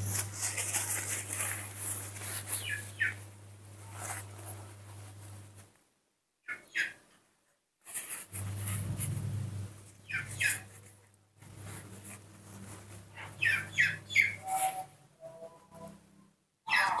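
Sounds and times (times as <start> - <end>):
steady low hum: 0.0 - 6.0, 8.1 - 16.6
small animal squeaking: 2.5 - 3.2, 10.0 - 10.7, 13.2 - 15.8, 16.7 - 17.0.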